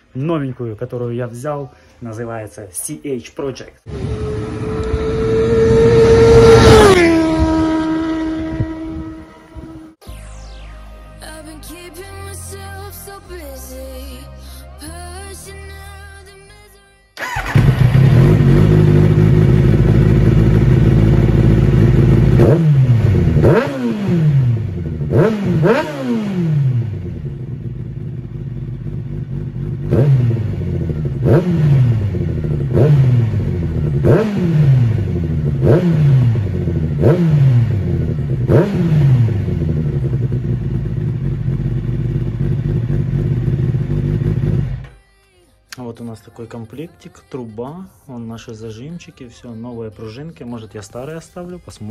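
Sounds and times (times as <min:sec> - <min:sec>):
motorcycle engine throttle blips: 0:03.9 - 0:10.0, 0:17.2 - 0:44.9.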